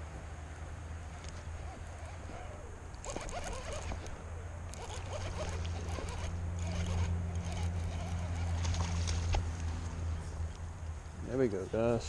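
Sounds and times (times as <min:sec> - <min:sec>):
fishing reel whirring and clicking: 0:02.1 - 0:09.2.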